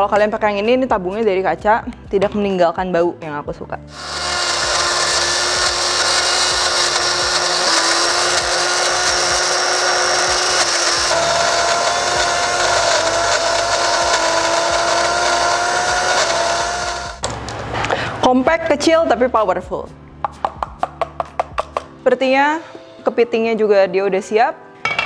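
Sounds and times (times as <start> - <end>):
blender motor whining: 3.9 - 17.2.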